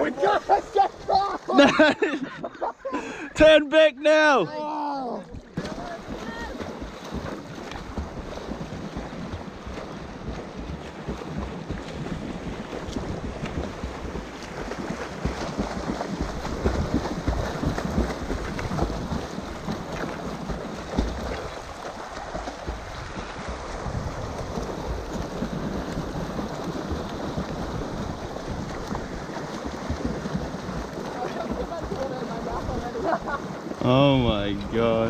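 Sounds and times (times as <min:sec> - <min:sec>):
water splashing and sloshing: 0:00.0 - 0:35.0
wind rumbling on microphone: 0:05.3 - 0:31.7.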